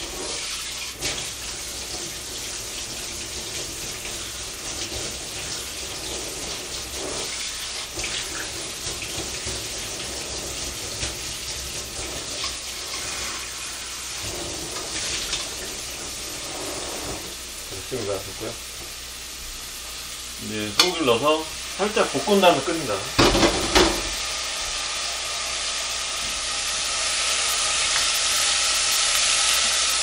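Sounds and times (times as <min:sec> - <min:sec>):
tap running into sink: 0:23.2 - 0:24.2.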